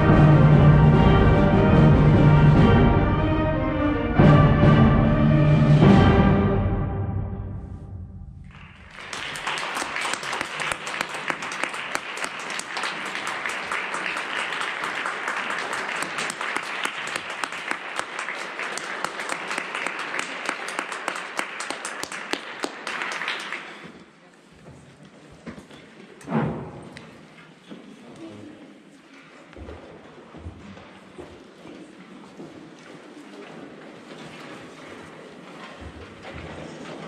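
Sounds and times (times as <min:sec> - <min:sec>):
audience applauding: 0:08.4 - 0:24.0.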